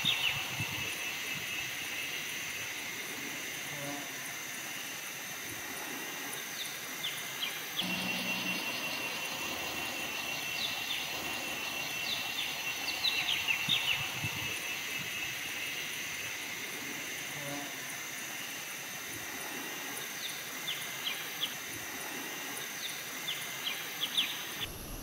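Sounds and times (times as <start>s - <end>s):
insect drone: 0.0s - 25.0s
bird chirps: 7.8s - 14.7s.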